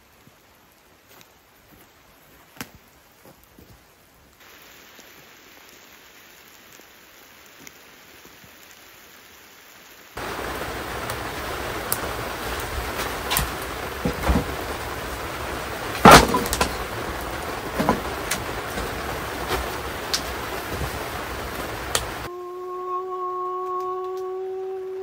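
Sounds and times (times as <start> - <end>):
light rain falling: 0.0 - 22.3
rain pattering on tent canvas: 0.0 - 22.3
scattered ticks and knocks: 11.9 - 15.0, 15.8 - 21.0.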